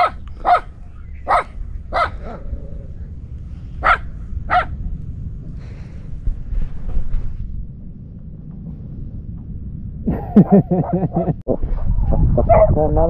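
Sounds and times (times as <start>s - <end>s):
dog barking: 0.0s - 2.4s, 3.8s - 4.8s.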